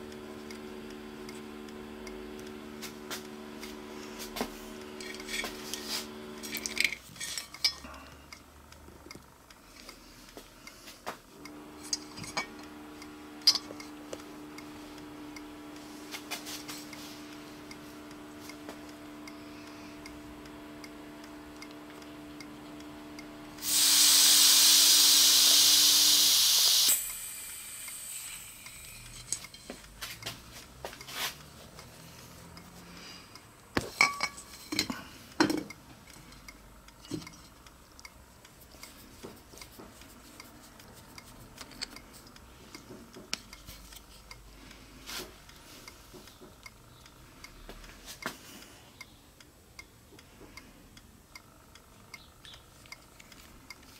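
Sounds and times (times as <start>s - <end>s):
steady low hum: 0.0s - 53.9s
compressed air hissing: 23.6s - 29.3s.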